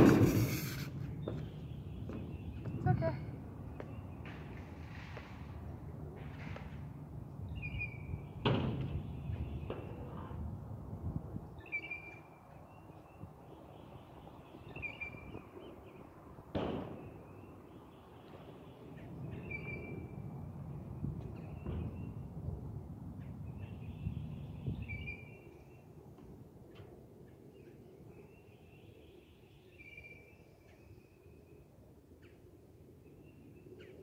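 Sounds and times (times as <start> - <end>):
scooter clacking on ground: 0.0 - 1.4
scooter wheels rolling on concrete: 0.0 - 1.5.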